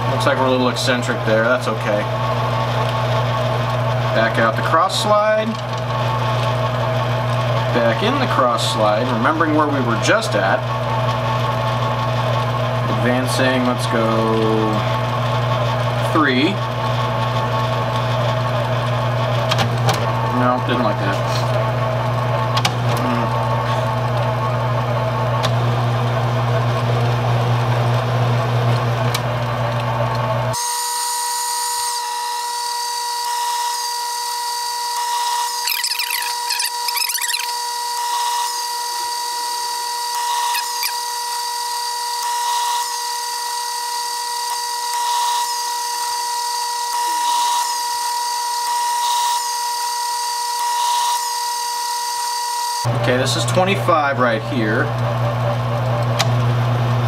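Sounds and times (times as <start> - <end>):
lathe low hum: 0.0 - 49.4, 52.8 - 57.0
high motor whine: 30.5 - 56.7
brief chirping sounds: 35.6 - 37.6.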